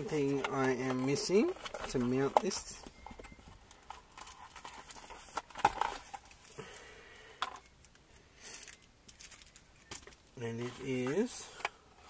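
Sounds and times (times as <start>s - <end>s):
small parts clicking and knocking: 7.4s - 10.4s.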